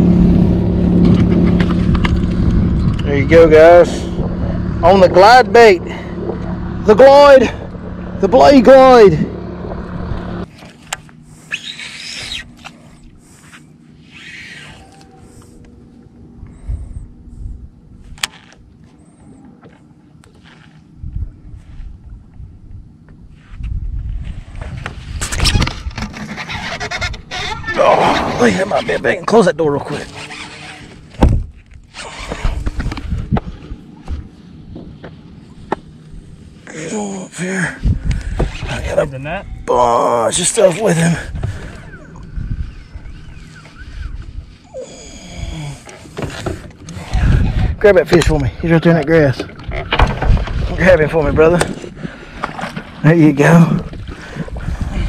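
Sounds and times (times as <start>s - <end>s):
fishing reel spool whirring: 11.3s - 15.8s, 29.8s - 31.2s, 41.4s - 46.2s
rustling noise: 23.3s - 27.2s.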